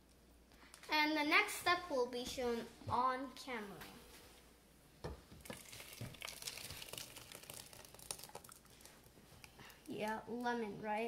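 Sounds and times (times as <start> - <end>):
thick puree pouring into saucepan: 5.4 - 9.9.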